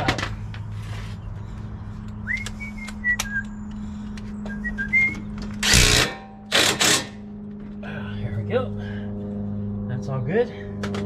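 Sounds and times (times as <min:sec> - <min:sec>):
steady low hum: 0:00.0 - 0:11.0
person whistling: 0:02.2 - 0:03.5, 0:04.5 - 0:05.3.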